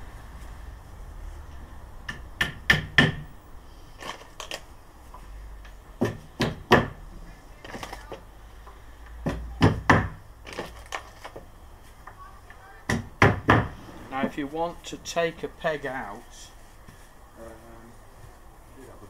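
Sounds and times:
rubber hammer knocking wood: 2.1s - 3.2s, 6.0s - 7.0s, 9.2s - 10.2s, 12.9s - 13.8s.

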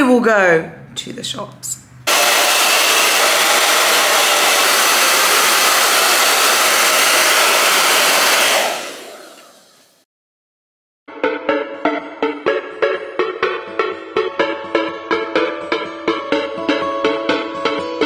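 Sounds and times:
hair dryer running: 2.1s - 10.0s.

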